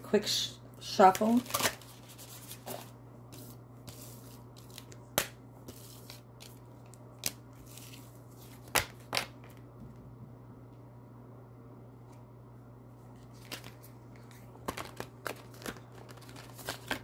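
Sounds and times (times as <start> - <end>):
steady low hum: 0.0 - 17.0
cards rustling: 1.0 - 9.6, 13.2 - 17.0
cards snapping: 4.6 - 7.9, 8.6 - 9.6.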